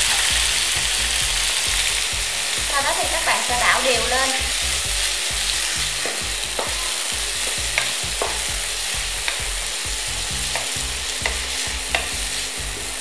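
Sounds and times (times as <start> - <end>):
spatula stirring in pan: 0.0 - 13.0
tomatoes sizzling in hot oil: 0.0 - 13.0
spatula knocking on pan: 5.3 - 13.0.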